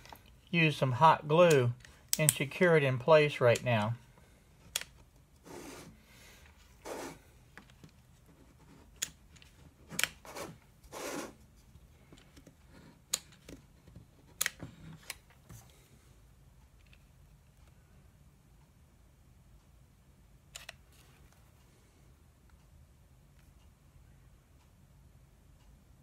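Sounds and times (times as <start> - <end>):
sharp clicks: 1.4 - 2.6, 4.7 - 5.0.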